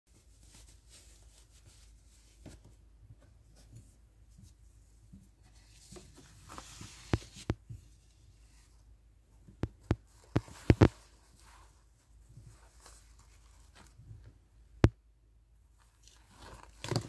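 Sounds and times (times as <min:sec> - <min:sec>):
paper rustling: 0:05.4 - 0:08.7.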